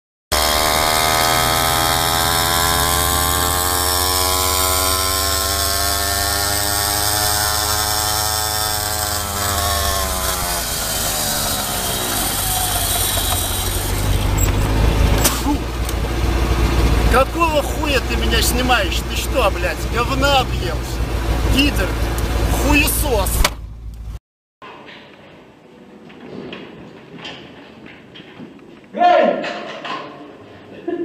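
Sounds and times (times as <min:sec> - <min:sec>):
small engine buzzing at high revs: 0:00.3 - 0:23.5.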